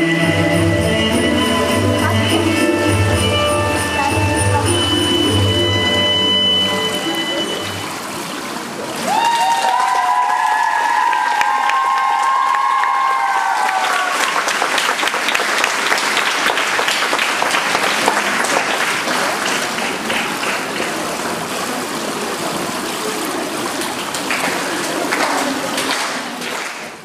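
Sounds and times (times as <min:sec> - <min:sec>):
audience applauding: 0:08.6 - 0:27.0.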